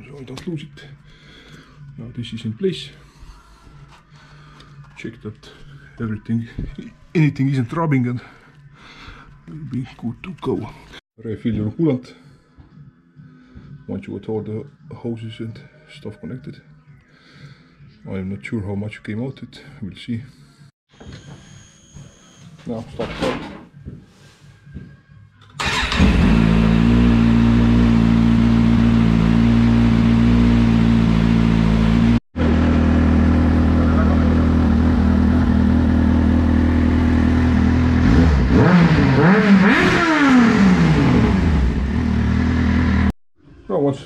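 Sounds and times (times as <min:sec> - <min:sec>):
motorcycle engine idling and revving: 0:25.6 - 0:43.1.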